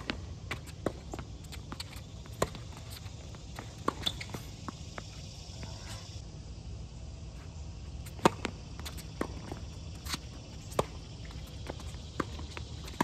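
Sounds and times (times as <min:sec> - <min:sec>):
footsteps and shoe scuffs: 0:00.0 - 0:06.2
tennis ball struck by rackets: 0:08.1 - 0:09.5.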